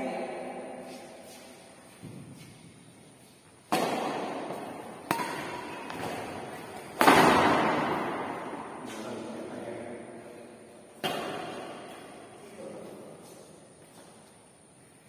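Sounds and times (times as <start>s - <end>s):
racket hitting shuttlecock: 3.6s - 9.0s, 11.0s - 12.3s.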